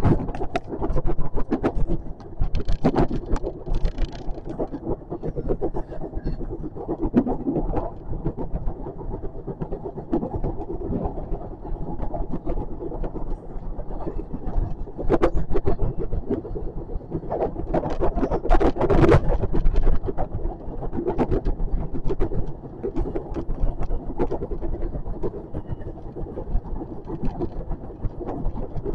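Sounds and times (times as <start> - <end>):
rattling and clicks: 0.0 - 5.6
train wheels rumbling on rail: 0.0 - 28.8.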